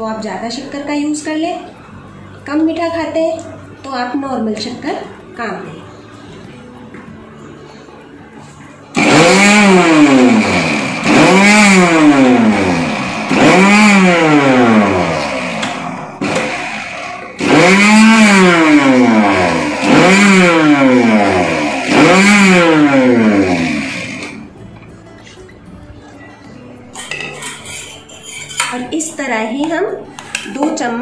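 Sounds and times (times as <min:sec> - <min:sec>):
mixer grinder whining in pulses: 0:08.9 - 0:24.6.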